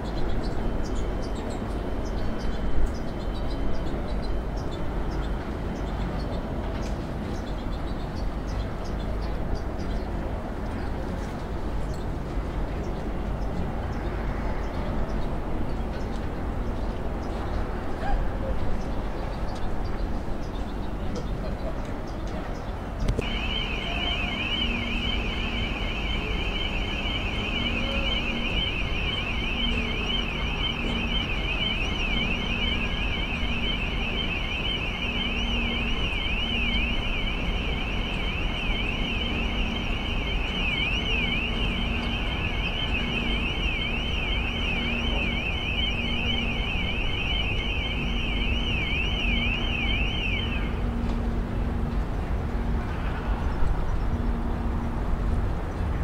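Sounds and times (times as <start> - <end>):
electronic alarm warbling: 23.2 - 50.8
low tone beeping: 23.2 - 51.0.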